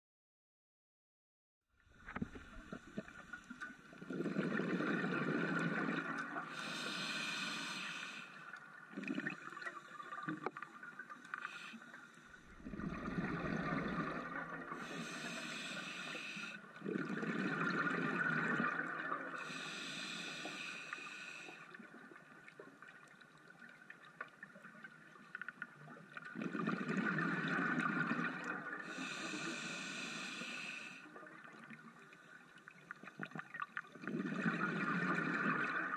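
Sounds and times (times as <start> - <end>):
exhaled bubbles rumbling: 1.9 - 6.5, 8.7 - 11.2, 12.4 - 14.9, 16.8 - 19.4, 26.2 - 29.0, 33.0 - 35.9.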